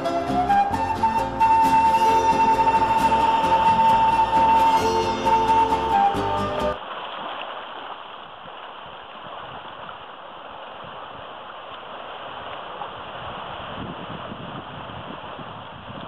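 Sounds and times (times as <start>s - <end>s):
background music: 0.0s - 6.8s
small waves washing over sand: 6.8s - 16.0s.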